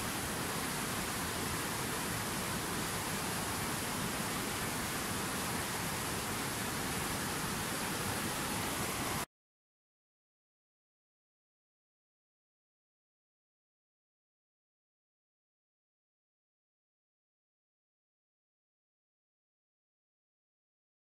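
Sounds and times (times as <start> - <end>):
river rushing over rocks: 0.0 - 9.3.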